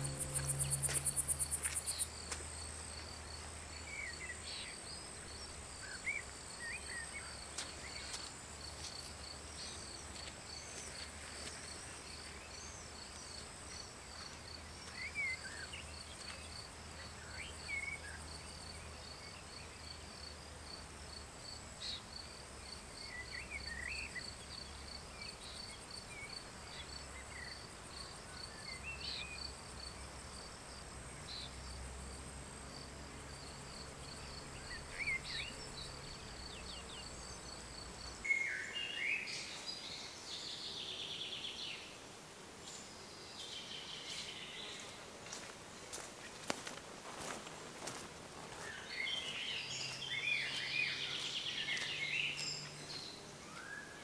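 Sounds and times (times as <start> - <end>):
music: 0.0 - 1.4
steady high buzz: 0.0 - 2.8
crickets chirping: 0.0 - 54.0.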